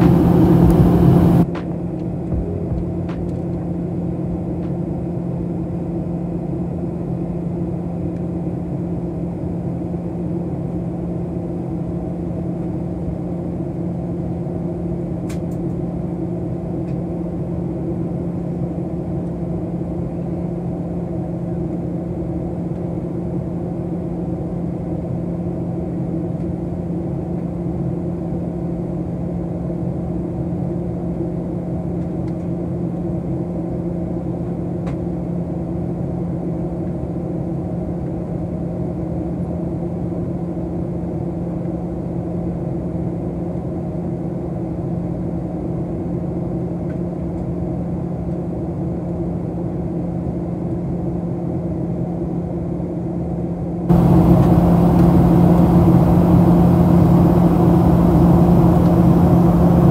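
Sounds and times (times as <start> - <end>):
loud air rush: 0.0 - 1.5, 53.9 - 59.9
airplane cabin drone: 0.0 - 59.9.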